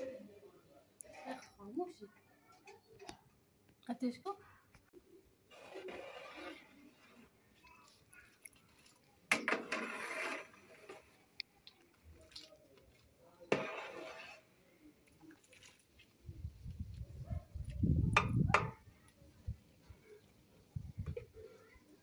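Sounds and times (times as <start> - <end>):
thick soup splashing: 7.8 - 16.2.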